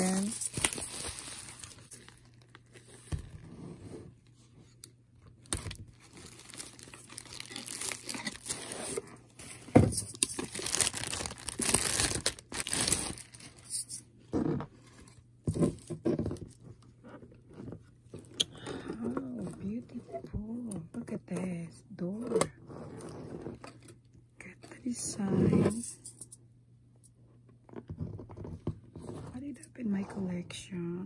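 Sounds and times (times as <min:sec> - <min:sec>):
plastic bag crinkling and tearing: 0:00.0 - 0:03.1, 0:05.4 - 0:14.0
sharp plastic crackle: 0:05.4 - 0:09.0, 0:09.9 - 0:14.0.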